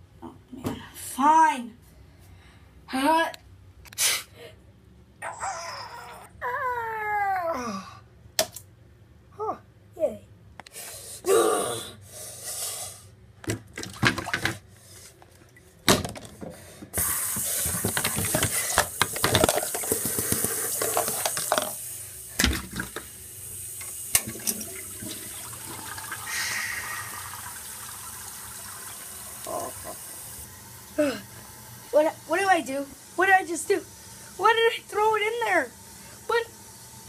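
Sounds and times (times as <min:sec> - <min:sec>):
tank refilling hiss: 0:17.0 - 0:17.8
toilet flush water rushing: 0:17.0 - 0:32.3.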